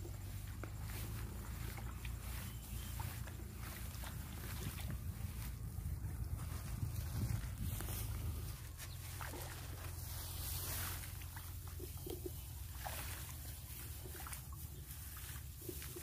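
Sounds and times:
rice stalks rustling: 0:00.0 - 0:16.0
wind rumble on microphone: 0:00.0 - 0:16.0.

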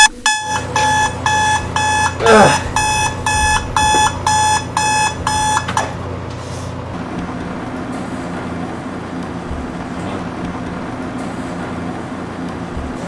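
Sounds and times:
electronic alarm beeping: 0:00.0 - 0:06.0
steady low hum: 0:00.0 - 0:13.0.

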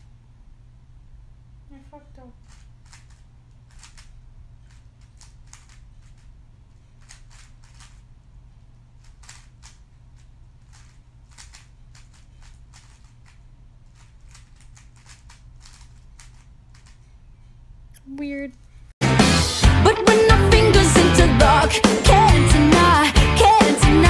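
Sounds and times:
steady low hum: 0:00.0 - 0:24.0
puzzle cube plastic clicks: 0:02.4 - 0:06.3, 0:07.0 - 0:08.0, 0:09.0 - 0:17.1.

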